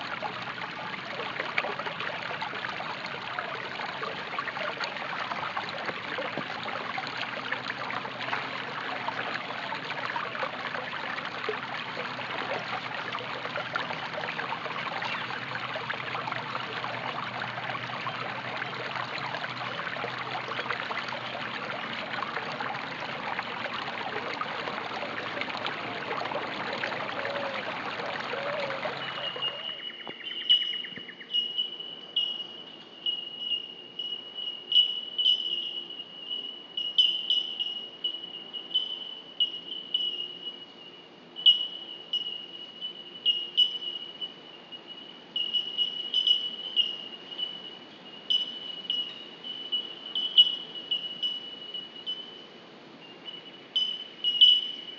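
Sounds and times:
running water: 0:00.0 - 0:31.8
insect chirps: 0:01.5 - 0:54.9
insect trill: 0:29.1 - 0:52.5, 0:53.2 - 0:54.9.

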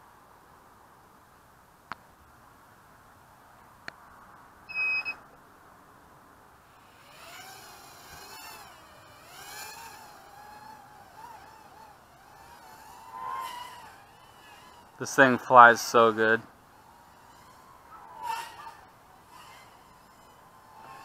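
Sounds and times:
electronic double beep: 0:04.7 - 0:05.2
quadcopter motors whining: 0:06.7 - 0:21.0.

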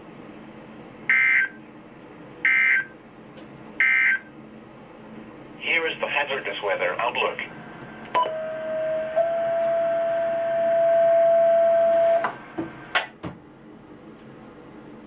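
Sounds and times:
steady electronic tone: 0:07.4 - 0:12.2.

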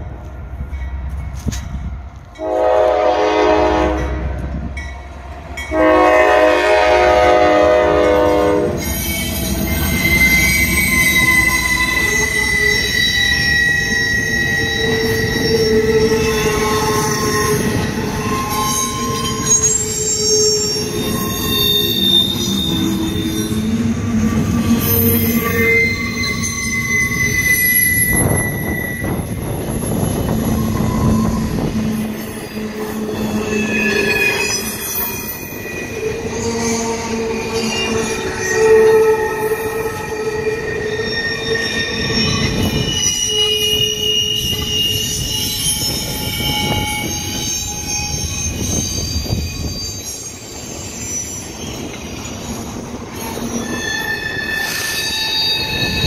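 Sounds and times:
train cars rumbling past: 0:00.0 - 0:56.0
locomotive air horn blasts: 0:02.4 - 0:04.4, 0:05.7 - 0:08.8
wheel squeal: 0:08.8 - 0:56.0.

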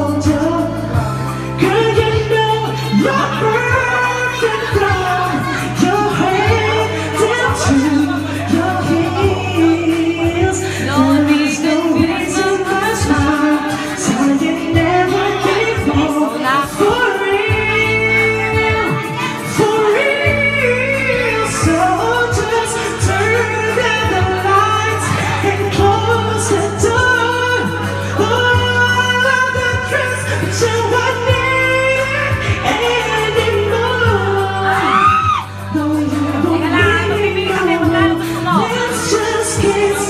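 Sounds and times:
man singing karaoke: 0:00.0 - 0:40.0
music backing track: 0:00.0 - 0:40.0
steady bass line: 0:00.0 - 0:40.0.

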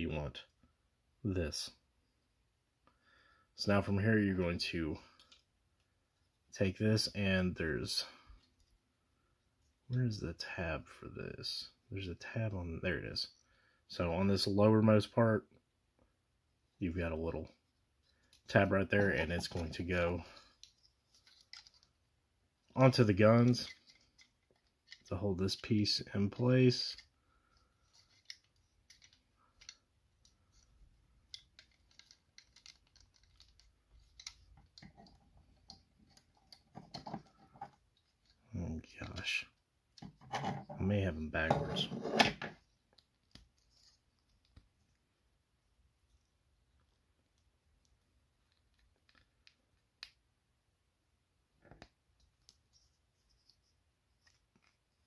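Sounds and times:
plastic parts clicking: 0:20.6 - 0:21.9, 0:27.8 - 0:38.4.

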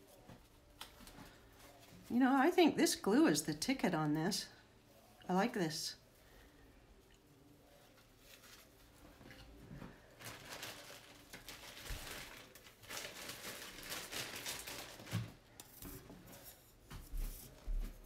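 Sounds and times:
fabric rustling and scratching: 0:07.6 - 0:18.0.

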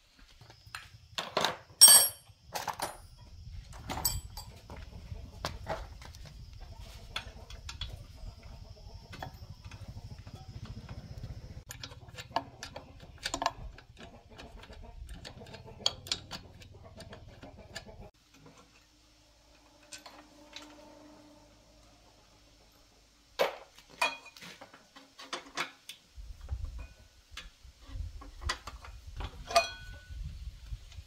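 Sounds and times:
spanner clinking on metal: 0:01.8 - 0:03.1, 0:03.9 - 0:04.6.

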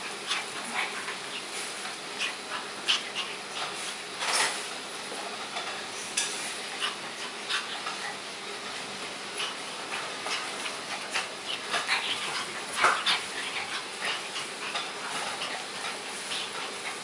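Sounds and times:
dogs playing and scuffling: 0:00.0 - 0:17.0.

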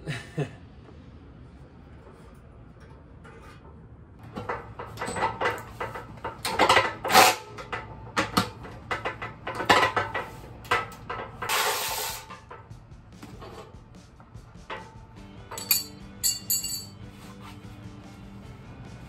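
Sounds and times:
metal tools clinking and rattling: 0:04.2 - 0:07.9, 0:14.7 - 0:17.0.

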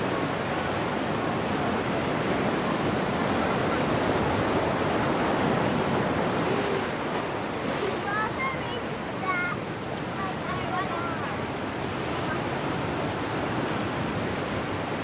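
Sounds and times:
ocean surf breaking over rocks: 0:00.0 - 0:15.0.

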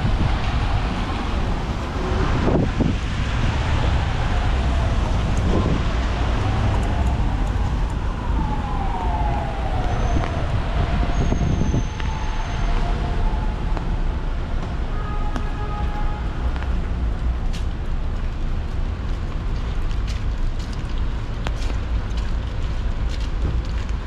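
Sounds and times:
low rumble of street noise: 0:00.0 - 0:24.0
siren wailing: 0:03.6 - 0:14.2.

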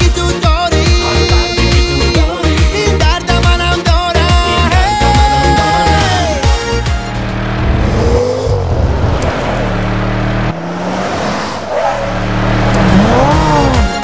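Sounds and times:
steady musical backing: 0:00.0 - 0:08.2
car driving past: 0:07.3 - 0:13.8.

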